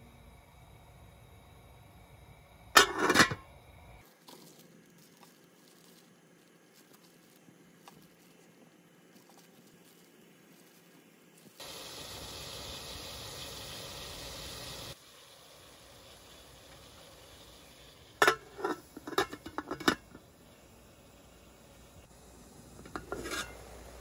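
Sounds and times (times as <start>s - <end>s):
steady hiss: 0.0s - 24.0s
metal lid clanking onto pot: 2.8s - 3.4s, 18.2s - 20.2s, 22.8s - 23.6s.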